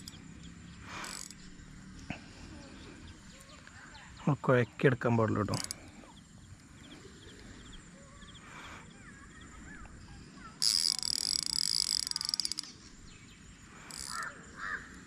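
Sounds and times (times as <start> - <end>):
fishing reel buzzing and clicking: 0.0 - 2.1, 5.4 - 7.4, 9.8 - 15.0.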